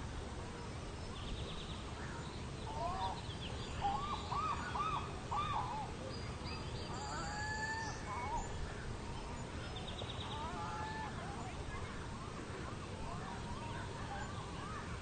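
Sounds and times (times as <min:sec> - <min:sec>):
birds calling: 0:01.2 - 0:12.1.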